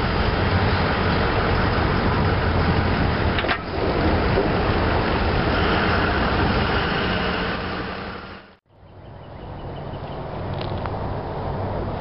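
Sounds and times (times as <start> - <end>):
diesel locomotive engine rumble: 0.0 - 8.6.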